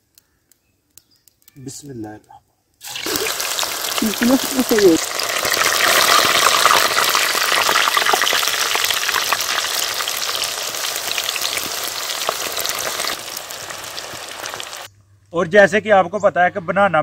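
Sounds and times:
banana slices deep-frying in oil: 2.8 - 14.9.

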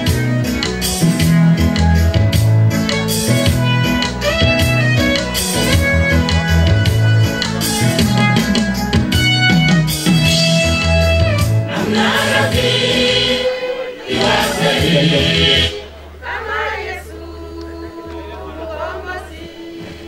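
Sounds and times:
amplified instrumental backing: 0.0 - 16.2
women's choir singing gospel: 11.6 - 20.0.

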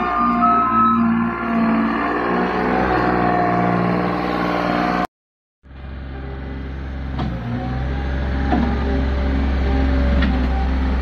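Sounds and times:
loader engine running under load: 5.7 - 11.0.

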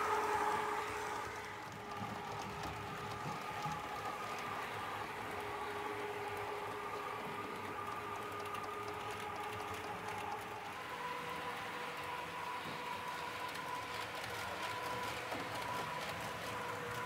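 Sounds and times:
model train electric whine: 0.0 - 17.0
faint clicks: 1.3 - 11.4.

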